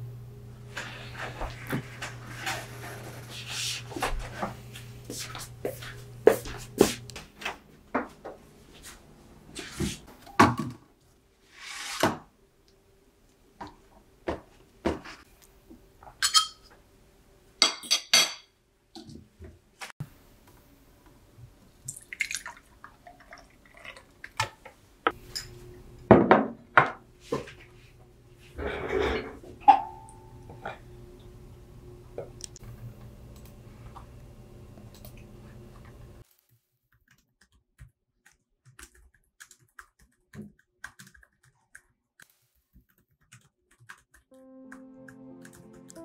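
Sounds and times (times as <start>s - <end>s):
spoon clinking against glass: 16.2s - 16.7s
liquid pouring: 21.8s - 24.6s.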